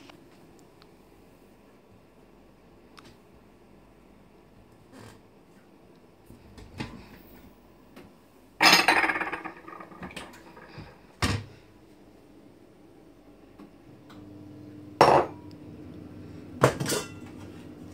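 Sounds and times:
dishes clattering: 0:08.6 - 0:10.7, 0:15.0 - 0:15.4, 0:16.6 - 0:17.4.

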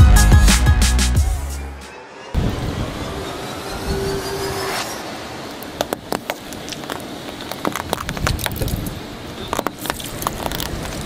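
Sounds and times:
brittle crunching and crackling: 0:06.1 - 0:11.0.

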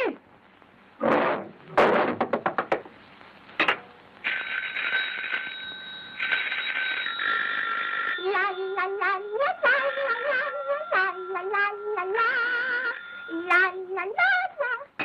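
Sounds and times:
telephone ringing strokes: 0:04.2 - 0:11.1
continuous bell-like ringing: 0:04.2 - 0:13.8.

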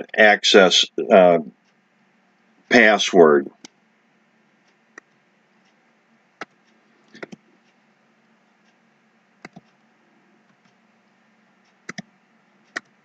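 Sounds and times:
keyboard keys clicking: 0:09.4 - 0:09.7, 0:11.9 - 0:12.1.

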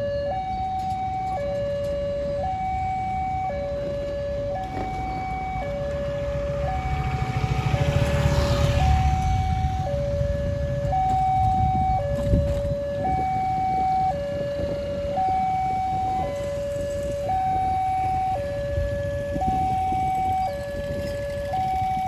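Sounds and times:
level crossing two-tone alarm: 0:00.0 - 0:05.8
motorbike engine passing: 0:05.4 - 0:11.1.

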